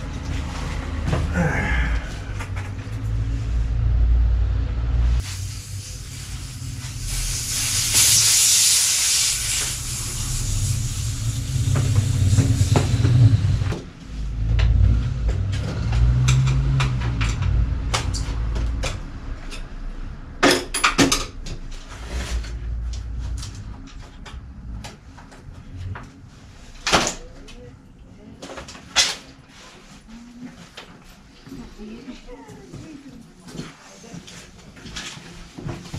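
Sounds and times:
low rumble with hiss: 0.0 - 15.9.

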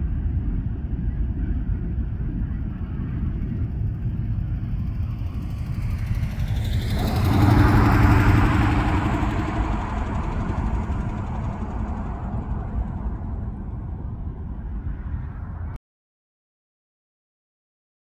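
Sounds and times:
steady low rumble: 0.0 - 15.8
vehicle passing by: 4.6 - 14.9.

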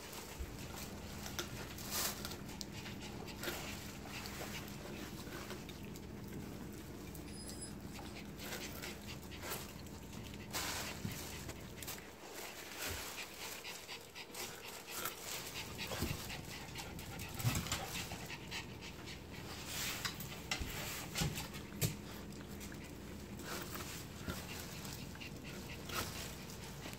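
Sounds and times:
dogs panting and sniffing: 0.0 - 26.9.

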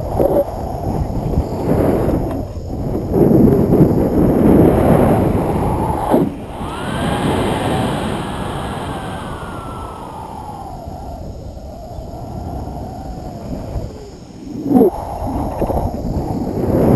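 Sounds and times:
wind buffeting microphone: 0.0 - 16.9
faint falling tone: 6.4 - 10.9.

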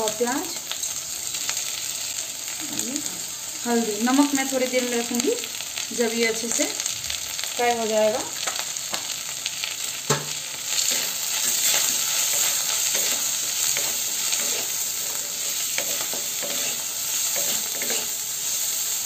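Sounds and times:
vegetables sizzling in hot oil: 0.0 - 19.0
spatula scraping and knocking pan: 10.1 - 18.2.

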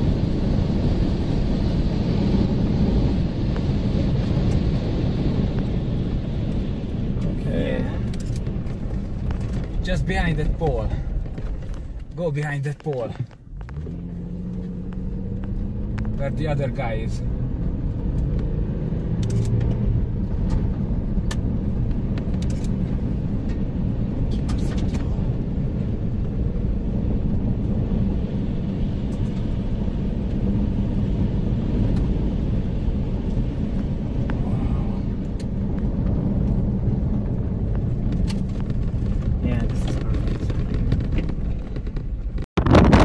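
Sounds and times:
vehicle driving on dirt road: 0.0 - 43.0
sharp clicks: 19.2 - 19.8.

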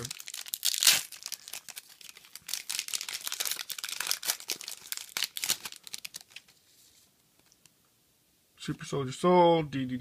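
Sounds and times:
foil wrapper crinkling: 0.0 - 6.6.

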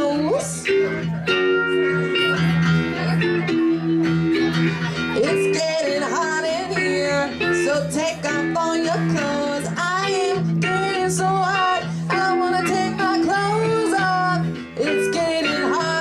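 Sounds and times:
electric guitar sliding notes: 0.0 - 16.0.

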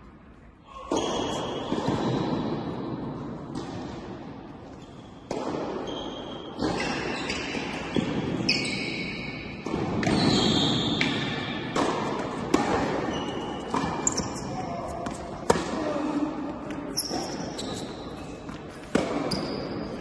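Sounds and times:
tennis shoes squeaking: 4.7 - 11.2, 12.5 - 15.4, 16.7 - 20.0
racket striking tennis ball: 5.3 - 8.5, 9.5 - 10.3, 10.9 - 15.8, 18.5 - 19.6
tennis ball bouncing: 5.3 - 8.5, 11.0 - 15.7.

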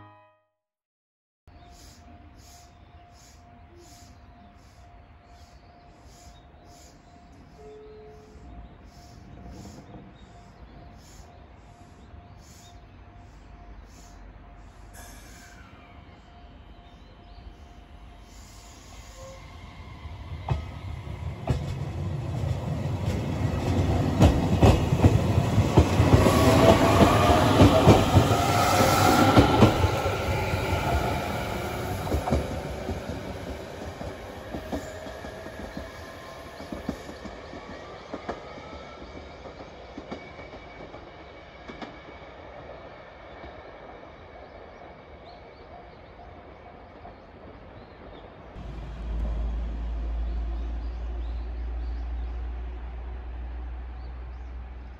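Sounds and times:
train wheels clicking over rail joints: 20.4 - 30.0.

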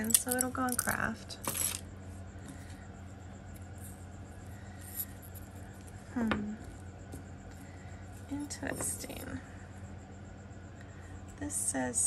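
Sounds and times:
small clicks of beads and metal: 0.0 - 1.8
steady low hum: 0.0 - 12.0.

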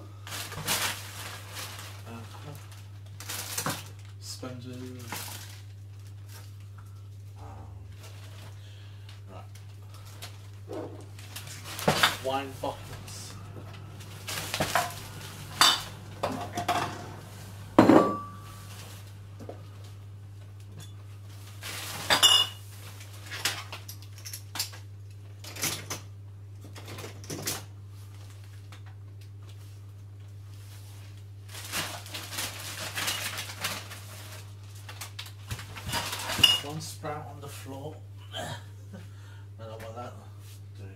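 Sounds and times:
low hum: 6.6 - 21.9
glass bottles clinking in a bag: 11.6 - 19.0, 21.8 - 22.6, 35.8 - 36.8.

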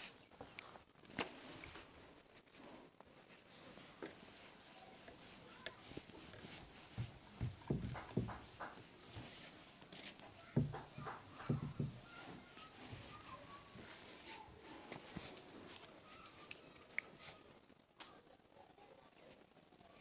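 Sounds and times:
duster rubbing whiteboard: 4.0 - 13.4.

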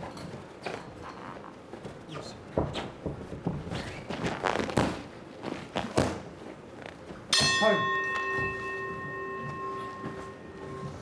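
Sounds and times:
boxing ring bell ringing: 7.3 - 11.0.

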